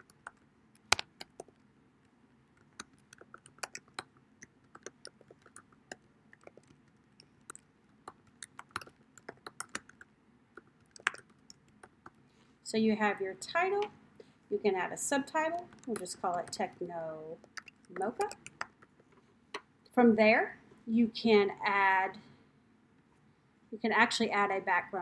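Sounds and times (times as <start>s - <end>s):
computer keyboard typing: 0.0s - 1.6s, 2.6s - 12.2s, 15.4s - 18.8s.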